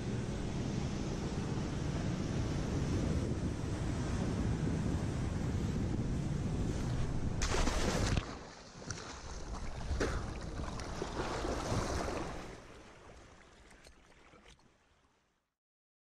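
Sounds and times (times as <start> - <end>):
wind on microphone: 0.0 - 12.6
water splashing and sloshing: 6.7 - 15.2.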